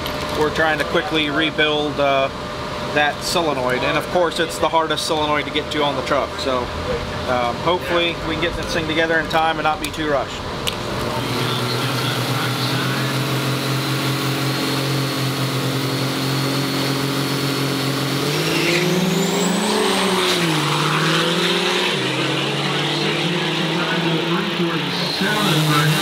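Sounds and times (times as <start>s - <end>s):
diesel trucks idling and launching: 0.0s - 26.0s
high turbo whistle: 11.2s - 26.0s.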